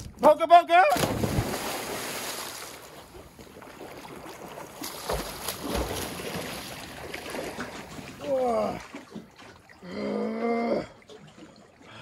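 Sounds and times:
swimmer splashing: 0.9s - 9.8s
water churning and fizzing: 1.0s - 12.0s.

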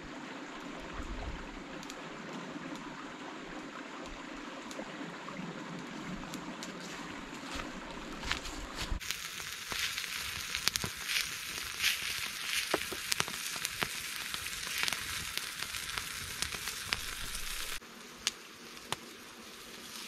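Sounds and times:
burning wood crackling: 5.6s - 20.0s
meat sizzling: 8.4s - 20.0s.

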